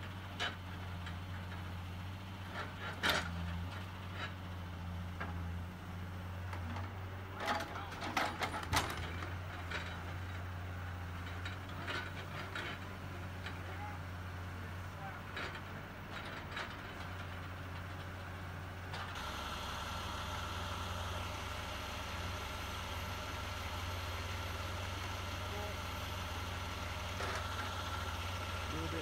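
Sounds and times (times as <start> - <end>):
diesel engine running: 0.0 - 29.0
truck diesel idling with whine: 0.0 - 29.0.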